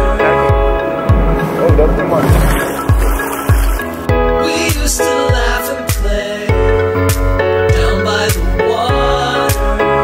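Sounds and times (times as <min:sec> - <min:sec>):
sustained chords: 0:00.1 - 0:04.7.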